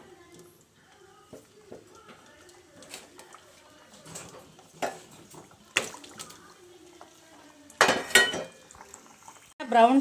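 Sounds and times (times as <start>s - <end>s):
food sizzling in hot oil: 0.0s - 10.0s
metal utensil clinking on pan: 7.8s - 8.6s.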